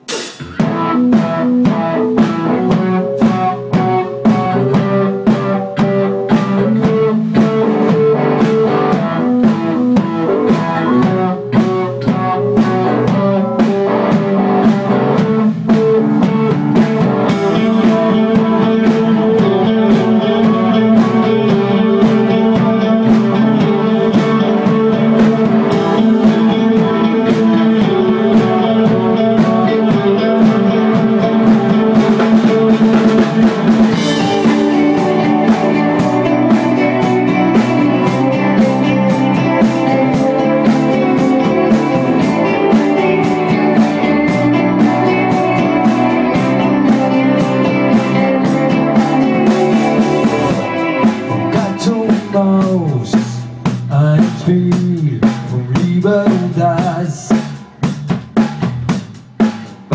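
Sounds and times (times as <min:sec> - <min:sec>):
bass guitar: 0:00.0 - 0:59.9
drum kit beat: 0:00.0 - 0:59.9
electric guitar: 0:00.0 - 0:59.9.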